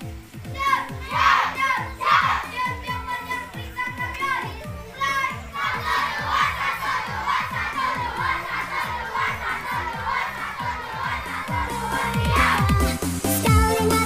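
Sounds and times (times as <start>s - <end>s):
children shouting together: 0.5s - 13.0s
music with electronic kick drum: 9.8s - 14.0s.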